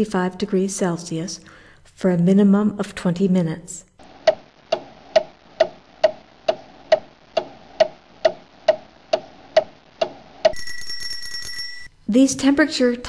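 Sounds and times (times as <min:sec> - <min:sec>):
mechanical kitchen timer ticking: 0:04.3 - 0:11.9.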